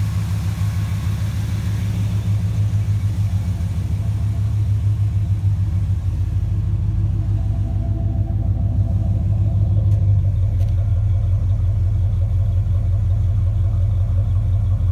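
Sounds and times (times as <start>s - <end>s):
car engine idling: 0.0s - 14.9s.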